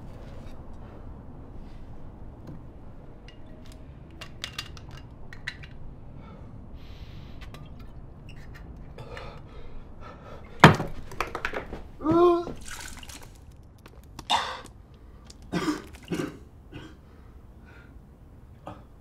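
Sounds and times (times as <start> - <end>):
low room hum: 0.0 - 19.0
person drinking from bottle: 15.5 - 16.3.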